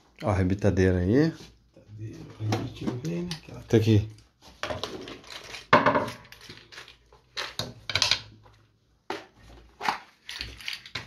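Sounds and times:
metal tools clinking: 10.2 - 11.0.

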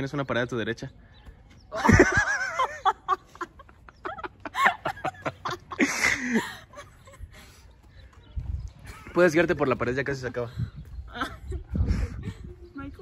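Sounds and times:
woman laughing breathily: 1.8 - 7.8, 11.1 - 12.8.

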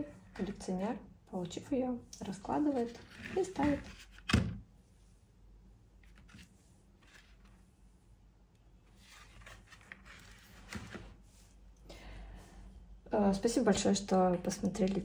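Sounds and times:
paper and card rustling: 2.6 - 4.4, 6.0 - 7.6, 8.9 - 11.3.

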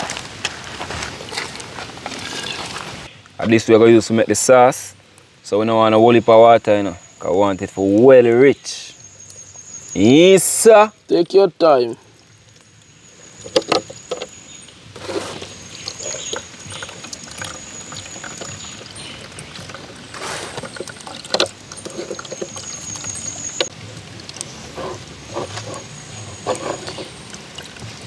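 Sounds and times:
liquid trickling and splashing: 9.0 - 28.0.

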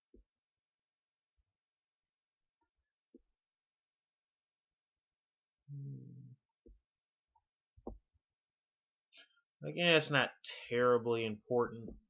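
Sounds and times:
man humming: 5.7 - 6.4.

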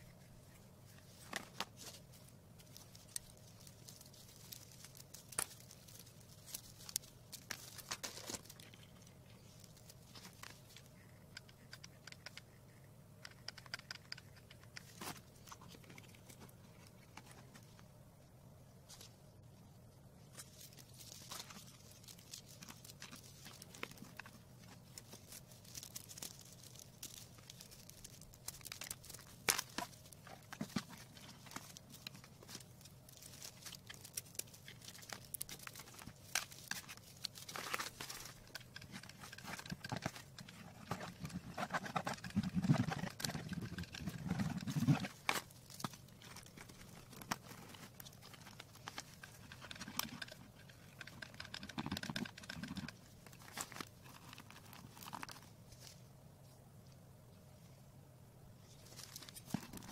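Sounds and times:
plastic crinkling and rustling: 0.4 - 11.0, 20.2 - 56.1, 58.6 - 59.9.

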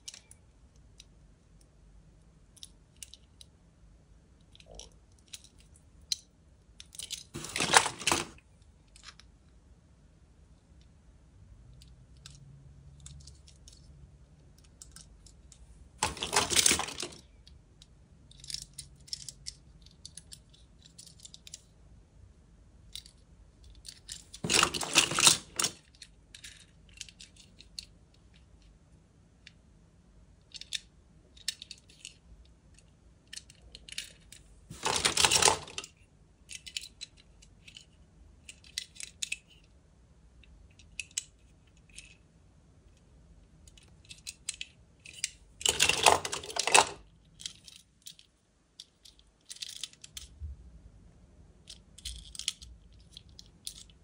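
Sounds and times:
metal toy cars clattering: 6.8 - 8.4, 16.0 - 17.2, 23.8 - 27.9, 33.3 - 35.9, 43.7 - 50.3
small clicks of toy car: 30.5 - 39.7, 40.7 - 42.2, 43.6 - 50.3, 51.7 - 54.0.

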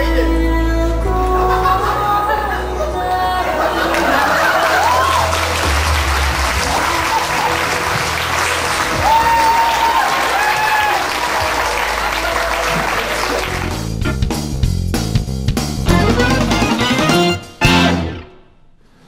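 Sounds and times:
audience applause: 3.6 - 14.0
background music with beat: 4.2 - 18.4.

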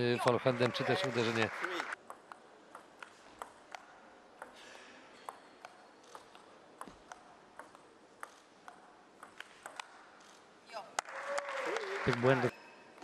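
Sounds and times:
table tennis ball clicks: 2.0 - 4.6, 5.3 - 10.0.

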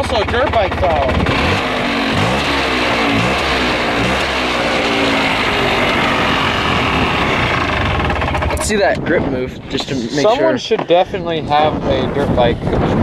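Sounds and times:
two-stroke engine revving: 0.0 - 9.0.

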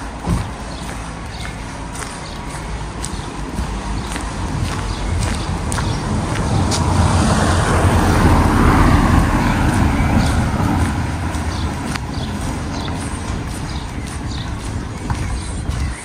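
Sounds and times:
car passing by: 0.0 - 13.9
faint footsteps clicking: 0.0 - 16.0.

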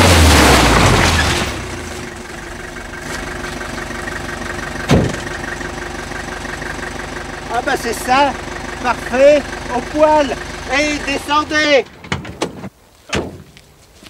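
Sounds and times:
mud and water spraying: 0.0 - 11.5
minibus engine idling: 1.6 - 12.0
van door slamming: 4.8 - 5.3.

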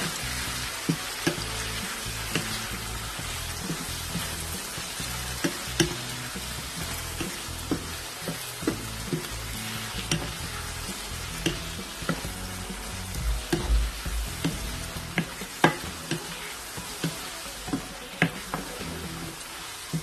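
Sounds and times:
food sizzling in a frying pan: 0.0 - 20.0
spatula clicking against pan: 0.9 - 1.5, 5.4 - 6.1, 11.4 - 12.2.

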